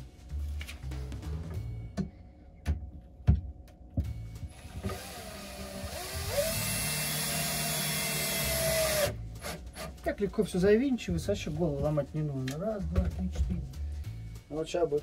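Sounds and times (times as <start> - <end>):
cordless drill motor whine: 4.6 - 9.1.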